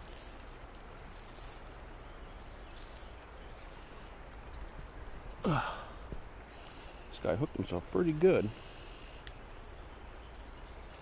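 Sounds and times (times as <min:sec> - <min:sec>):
person's falling vocal sound: 0:05.4 - 0:06.0.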